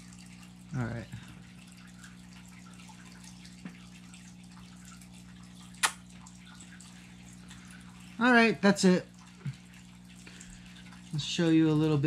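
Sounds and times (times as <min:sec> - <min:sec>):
lip-smacking kiss: 0:05.8 - 0:06.0.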